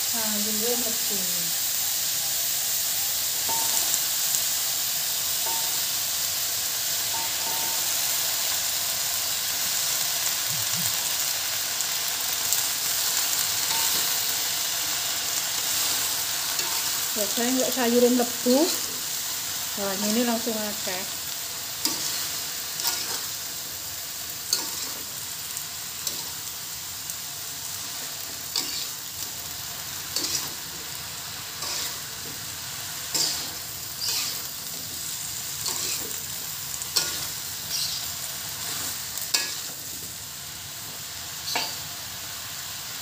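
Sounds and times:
cabbage sizzling in a wok: 0.0 - 43.0
metal spatula scraping a pan: 20.1 - 23.5, 24.4 - 25.2, 27.8 - 29.2, 29.9 - 39.8.

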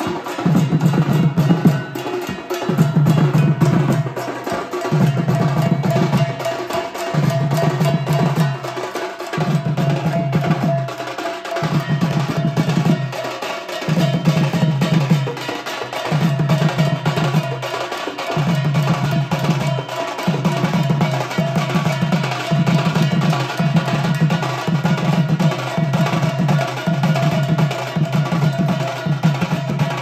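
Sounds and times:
deep drum pattern: 0.0 - 30.0
folk drum ensemble: 0.0 - 30.0.

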